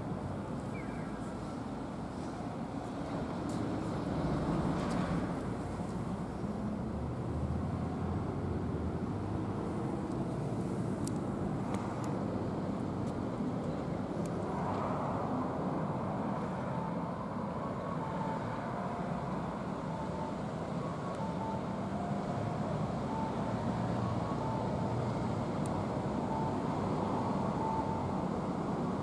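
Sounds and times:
distant road traffic rumble: 0.0s - 29.0s.

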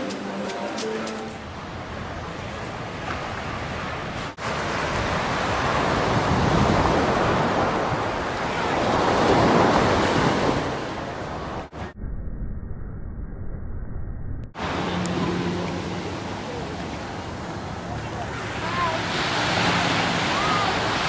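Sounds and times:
ocean surf on sandy beach: 0.0s - 11.7s, 14.6s - 21.0s
wind on microphone: 4.0s - 11.7s.

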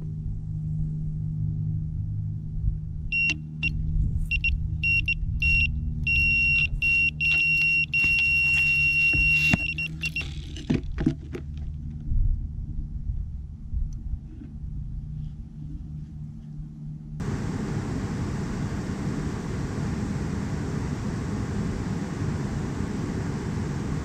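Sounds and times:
steady low rumble: 0.0s - 8.0s, 11.6s - 24.0s
electronic bite alarm beeping: 3.1s - 10.3s.

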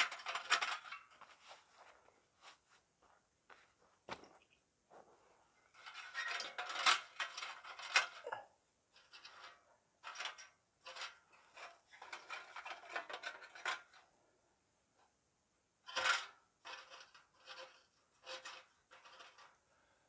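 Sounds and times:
metal stove clinking and scraping: 0.0s - 1.2s, 5.7s - 14.0s.

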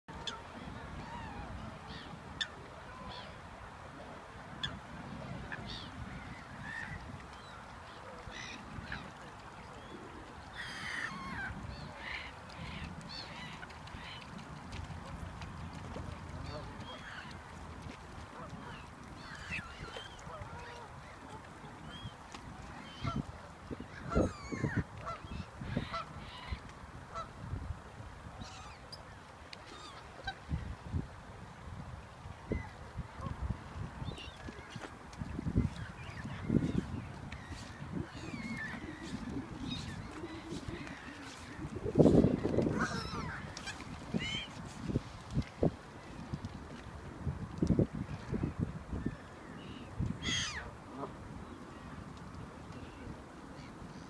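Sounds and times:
gulls and swans calling: 0.1s - 3.5s, 4.5s - 27.4s, 28.4s - 30.7s, 32.5s - 46.4s, 48.0s - 52.1s
gulls calling: 35.6s - 44.6s.

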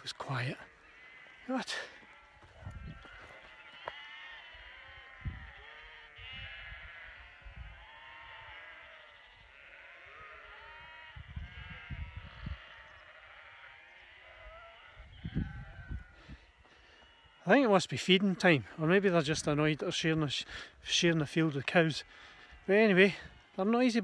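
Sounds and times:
sheep bleating: 0.0s - 24.0s.

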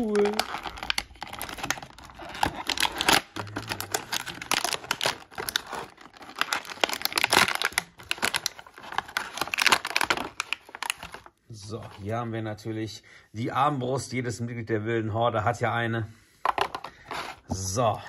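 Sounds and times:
plastic bag crinkling: 0.0s - 12.1s.

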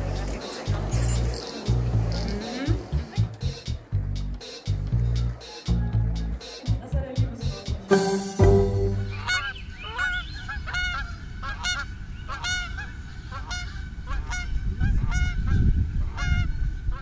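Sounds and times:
geese honking: 7.9s - 14.5s.

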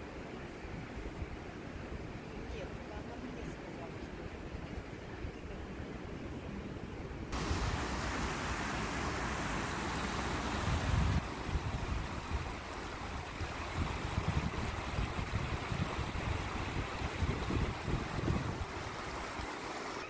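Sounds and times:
wind buffeting microphone: 7.3s - 19.5s
river rushing over stones: 7.3s - 20.0s.

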